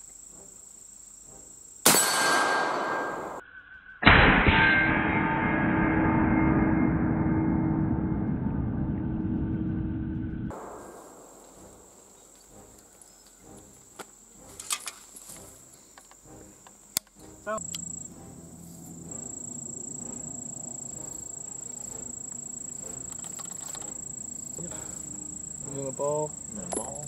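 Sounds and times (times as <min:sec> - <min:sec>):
high-pitched insect drone: 0:00.0 - 0:04.0, 0:10.6 - 0:27.0.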